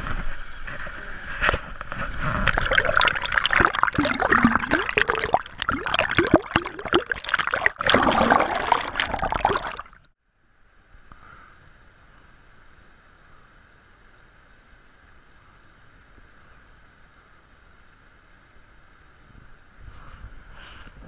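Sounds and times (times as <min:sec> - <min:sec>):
churning water underwater: 0:02.1 - 0:10.1.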